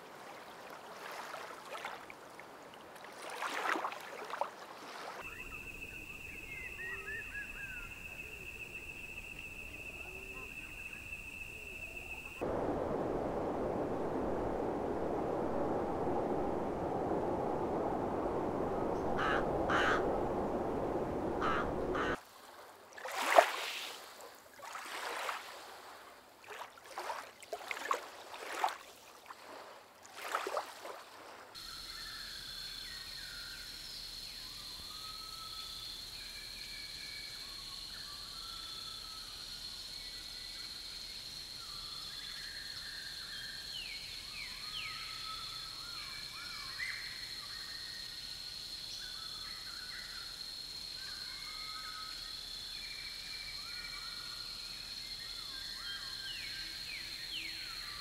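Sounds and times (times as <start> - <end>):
loud bird calls: 19.0 - 20.3, 21.3 - 22.2.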